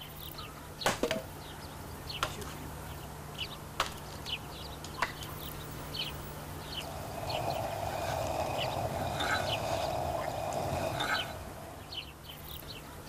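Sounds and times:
small birds chirping: 0:00.0 - 0:13.0
steady background noise: 0:00.0 - 0:13.0
axe chopping wood: 0:00.8 - 0:01.2.

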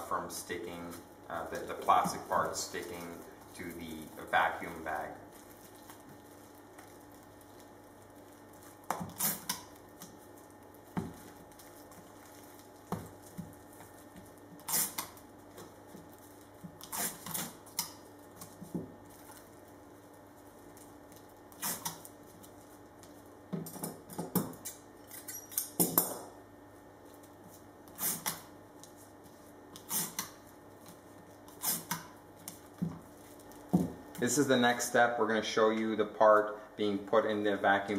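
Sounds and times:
masking tape pulled and torn: 0:08.7 - 0:10.2, 0:14.5 - 0:15.3, 0:16.7 - 0:18.6, 0:21.1 - 0:22.2, 0:27.8 - 0:28.5, 0:29.8 - 0:30.4, 0:31.5 - 0:32.7.

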